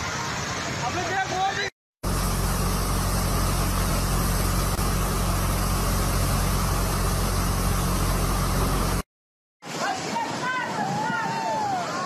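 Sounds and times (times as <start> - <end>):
floodwater rushing: 0.0 - 9.0, 9.6 - 12.0
vehicle engine idling: 2.0 - 9.0.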